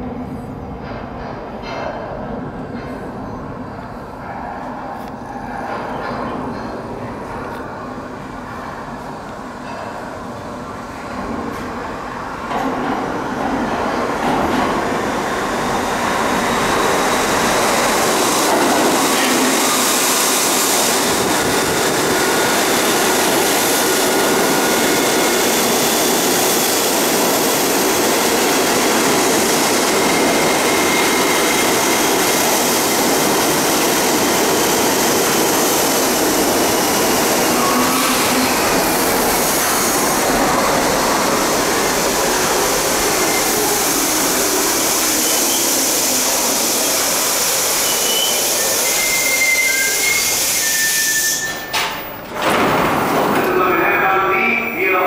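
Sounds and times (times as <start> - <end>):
subway train wheels on rails: 0.0 - 55.0
high-pitched wheel squeals: 47.8 - 52.2.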